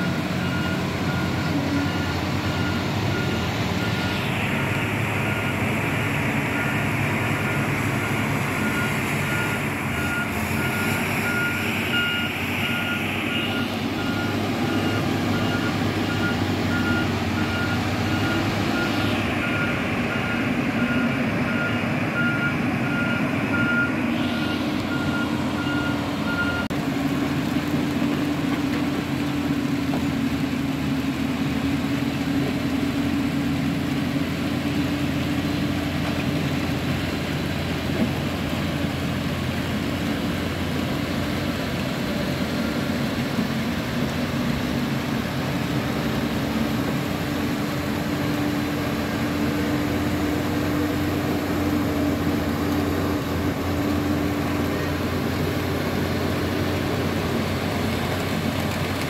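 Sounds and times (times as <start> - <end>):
reversing alarm beeps: 0.0 - 26.7
diesel engine running: 0.0 - 59.0.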